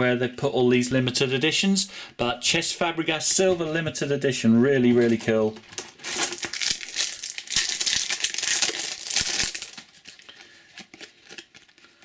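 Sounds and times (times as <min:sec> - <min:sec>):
foil wrapper crinkling and tearing: 0:05.0 - 0:12.0.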